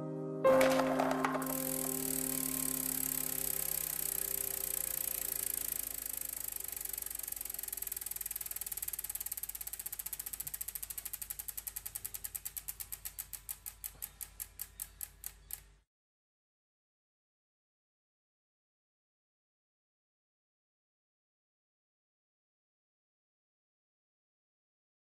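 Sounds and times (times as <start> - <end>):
music with held tones: 0.0 - 5.9
mechanical ratcheting ticks: 1.0 - 15.8.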